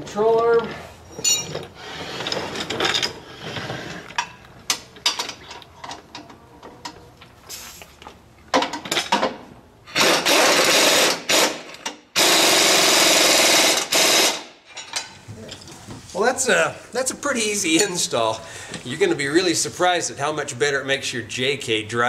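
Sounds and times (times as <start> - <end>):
tools clinking and clicking: 1.2 - 1.7.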